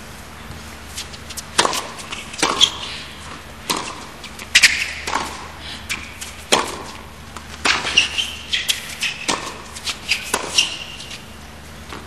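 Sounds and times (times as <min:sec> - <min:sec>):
shoes squeaking on hard court: 0:00.4 - 0:12.0
tennis racket striking ball: 0:01.0 - 0:11.3.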